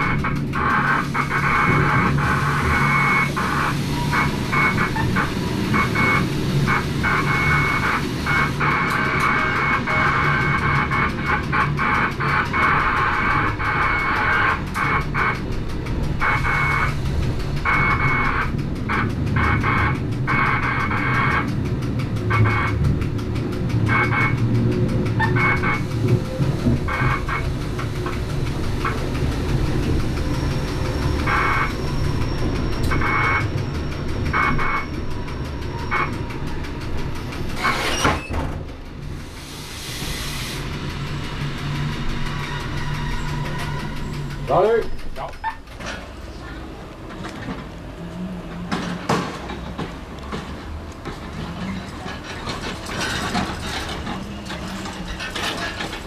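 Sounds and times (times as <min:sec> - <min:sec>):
electric train motor hum: 0:00.0 - 0:56.0
wheels squealing on curved track: 0:25.2 - 0:36.8, 0:37.4 - 0:38.5, 0:39.8 - 0:45.7.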